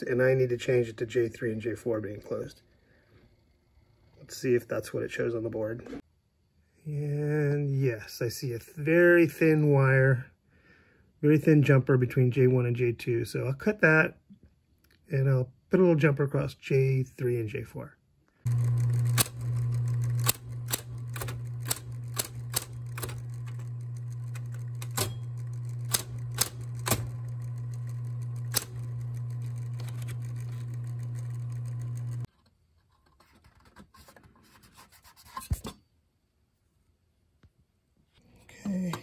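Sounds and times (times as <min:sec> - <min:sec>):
dot-matrix printer printing: 0:18.5 - 0:32.3.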